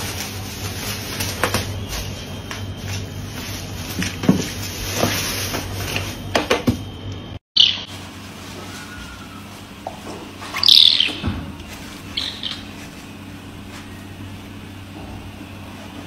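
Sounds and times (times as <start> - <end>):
kitten chirping calls: 10.6 - 11.2, 12.1 - 12.8.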